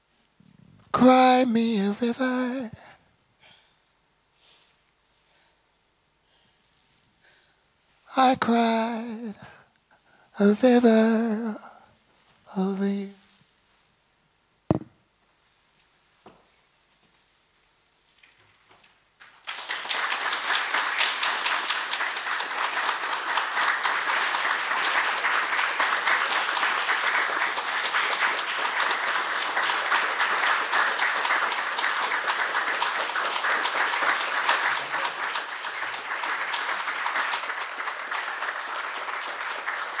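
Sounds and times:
audience applauding: 0:19.2 - 0:40.0.

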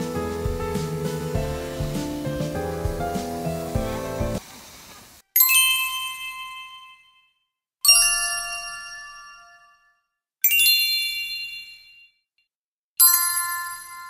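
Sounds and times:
bright bell-like chime: 0:05.4 - 0:12.2, 0:13.0 - 0:14.0.

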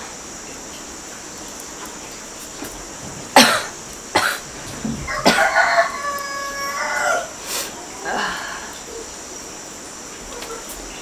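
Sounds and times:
woman coughing: 0:03.4 - 0:04.4, 0:05.2 - 0:05.5
rooster crowing: 0:04.8 - 0:08.0.

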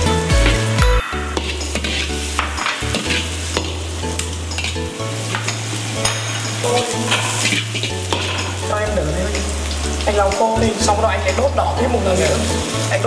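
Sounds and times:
steel ladle scraping a wok: 0:00.0 - 0:09.8
food sizzling in a wok: 0:00.0 - 0:13.0.

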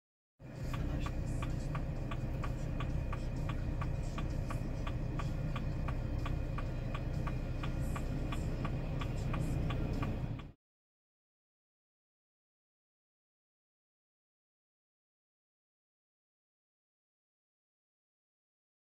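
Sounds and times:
car engine idling: 0:00.4 - 0:10.6.

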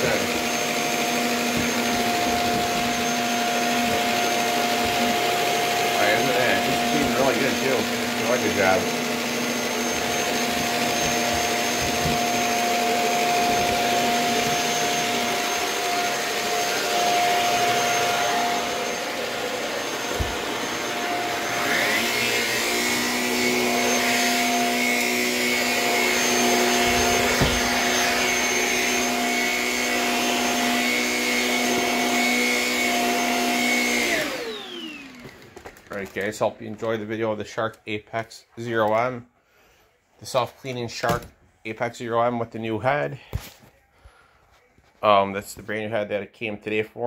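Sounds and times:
stick vacuum running: 0:00.0 - 0:37.0.

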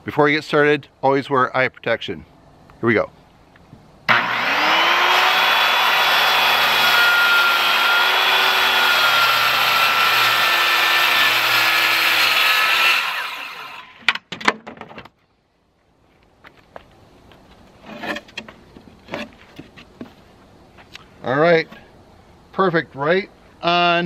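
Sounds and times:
circular saw cutting board: 0:04.1 - 0:14.1.

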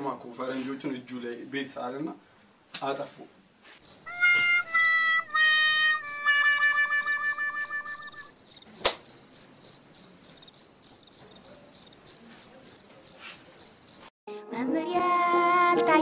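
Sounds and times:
crickets chirping: 0:03.8 - 0:05.1, 0:06.0 - 0:14.1
music: 0:04.1 - 0:08.2, 0:14.3 - 0:16.0
sharp click: 0:08.8 - 0:09.1.

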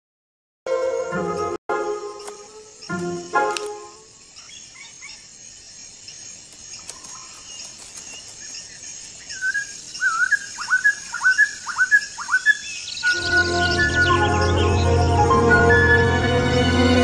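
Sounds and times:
faint high bird chirps: 0:02.1 - 0:16.1
loud whistled bird calls: 0:02.2 - 0:05.3, 0:08.2 - 0:16.3.

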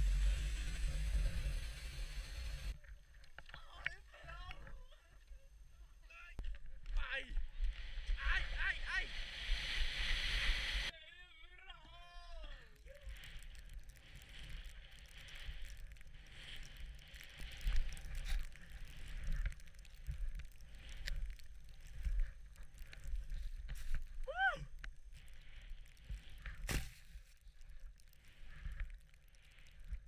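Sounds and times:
skis hissing through snow: 0:00.0 - 0:02.8, 0:07.4 - 0:10.9, 0:12.8 - 0:24.2
high-pitched yell: 0:24.3 - 0:24.7.

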